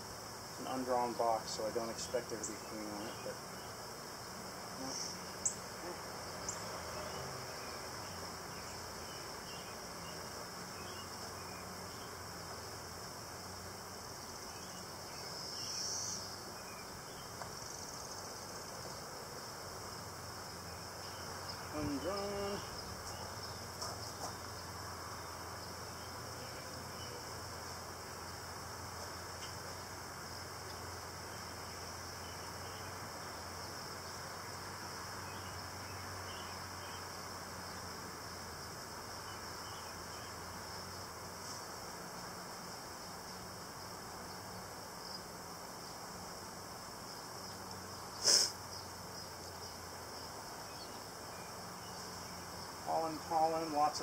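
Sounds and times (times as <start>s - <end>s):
high shrill insect drone: 0.0s - 18.7s, 19.6s - 28.7s
constant hiss: 0.0s - 54.0s
honeybees buzzing: 0.0s - 54.0s.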